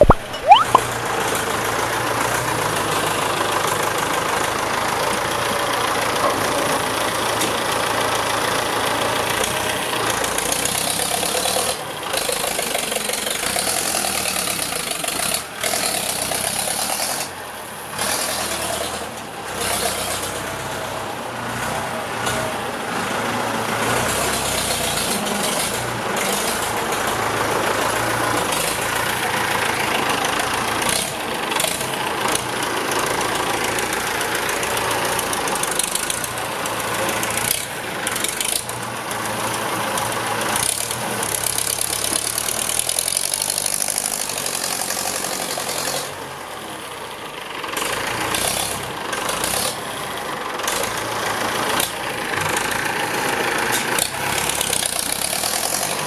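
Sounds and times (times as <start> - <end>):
tractor diesel engine running: 0.8 - 56.0
blade grading soil: 47.8 - 56.0.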